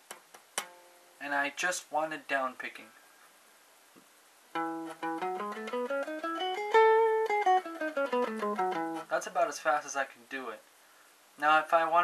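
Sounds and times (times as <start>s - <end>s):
electric guitar playing a scale: 4.6s - 9.1s.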